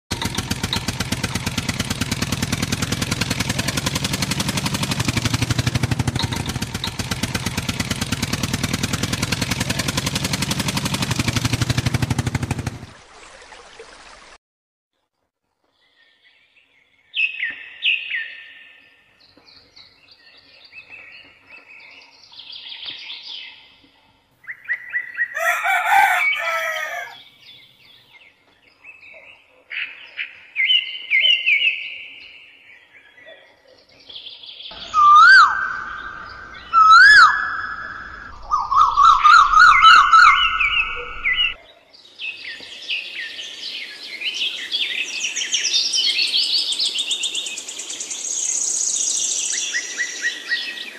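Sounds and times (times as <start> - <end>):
birds chirping and trilling: 15.8 - 50.9
rooster crowing: 25.2 - 27.3.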